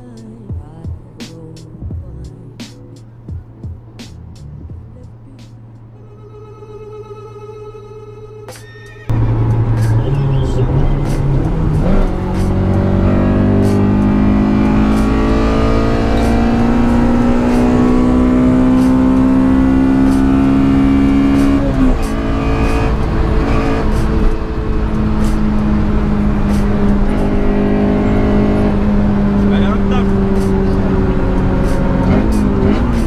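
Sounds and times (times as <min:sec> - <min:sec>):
car engine accelerating through gears: 0:09.1 - 0:33.0.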